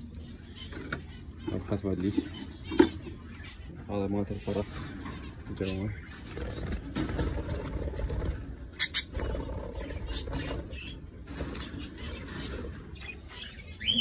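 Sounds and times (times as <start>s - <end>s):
birds fluttering wings against wire: 6.2s - 12.8s.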